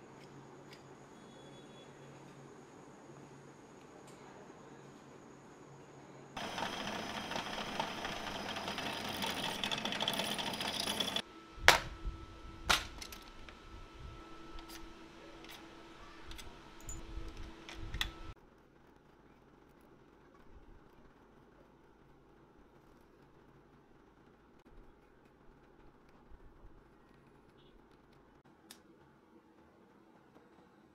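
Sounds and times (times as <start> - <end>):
rapid mechanical clatter: 6.4 - 11.2.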